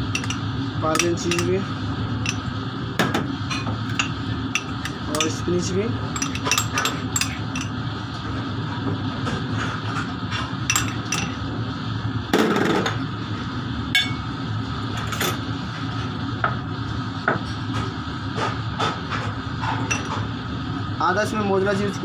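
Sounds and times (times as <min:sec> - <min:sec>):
steady background hum: 0:00.0 - 0:22.0
spoon clinking on porcelain dishes: 0:00.1 - 0:01.6, 0:06.2 - 0:07.8.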